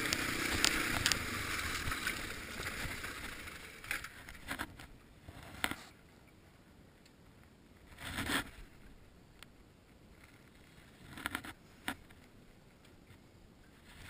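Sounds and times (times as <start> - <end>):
jacket sleeve rubbing on camera: 7.9 - 8.8.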